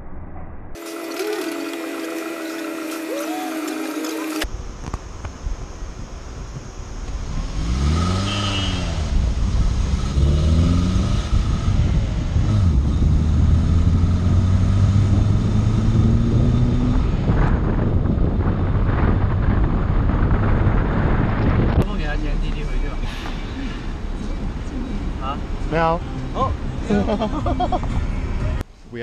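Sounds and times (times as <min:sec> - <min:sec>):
road noise: 0:00.0 - 0:29.0
car engine revving: 0:07.2 - 0:28.6.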